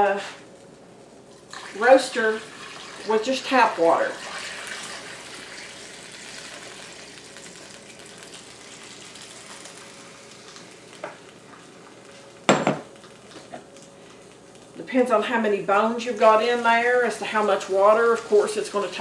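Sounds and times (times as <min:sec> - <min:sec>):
water pouring and splashing: 0:01.5 - 0:03.1.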